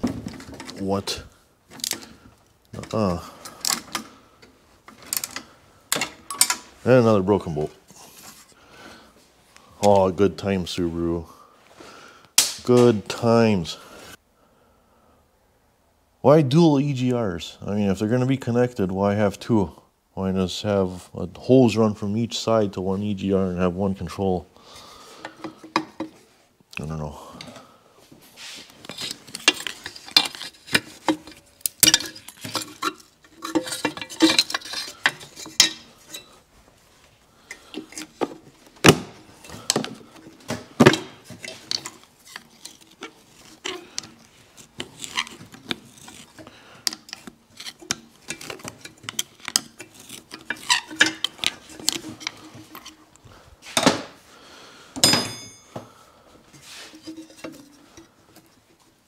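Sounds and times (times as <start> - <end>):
metal tools and parts clinking: 2.8 - 6.8, 28.8 - 36.5, 37.4 - 53.2, 55.0 - 55.9, 56.6 - 58.2.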